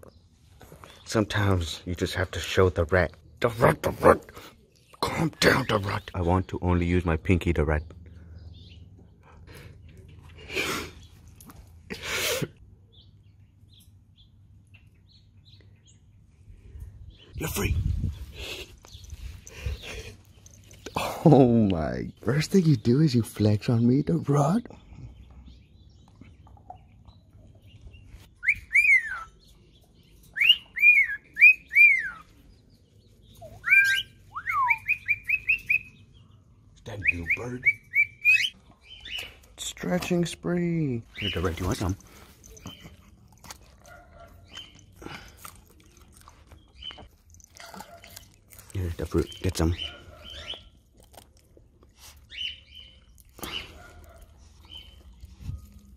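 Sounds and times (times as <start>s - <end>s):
cockatiels whistling: 28.4s - 29.4s, 30.4s - 32.2s, 33.5s - 35.9s
breathy snorts: 44.9s - 45.8s, 53.4s - 54.0s.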